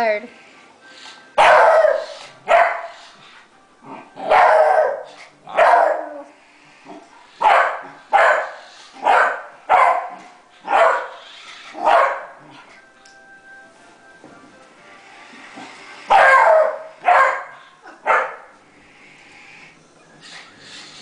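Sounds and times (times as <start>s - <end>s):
dog barking: 1.4s - 3.0s, 4.2s - 6.2s, 7.4s - 11.2s, 11.8s - 12.4s, 16.1s - 18.5s.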